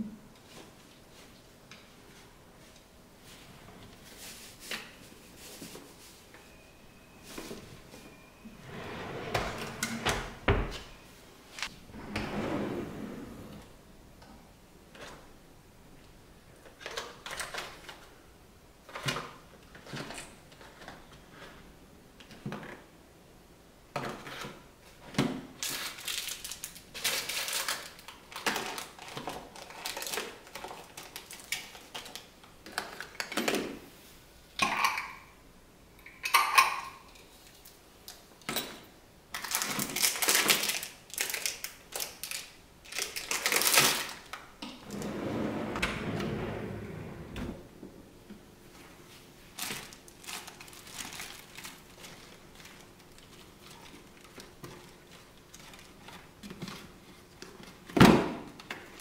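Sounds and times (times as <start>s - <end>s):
drawer sliding shut on metal runners: 8.6s - 10.7s, 11.9s - 13.7s, 44.8s - 47.7s
small items clattering in plastic bins: 24.0s - 33.8s, 38.4s - 45.2s, 49.5s - 59.0s.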